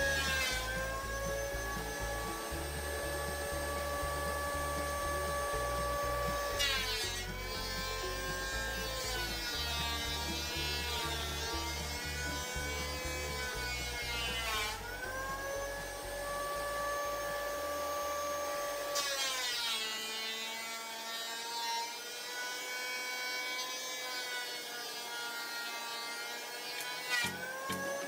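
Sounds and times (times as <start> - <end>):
thickness planer whining: 0.0 - 28.0.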